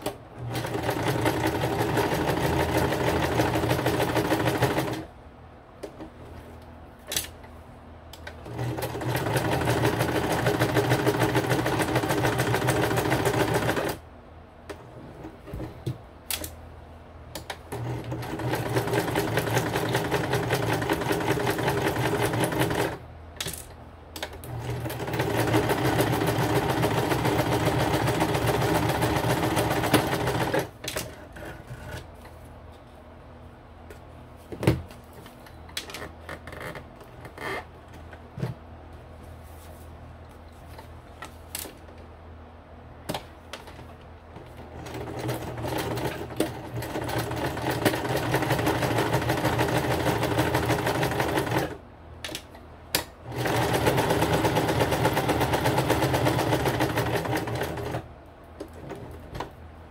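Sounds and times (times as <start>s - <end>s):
sewing machine stitching: 0.0s - 5.1s, 8.3s - 14.0s, 17.5s - 23.0s, 24.2s - 32.1s, 44.7s - 51.8s, 53.2s - 58.1s.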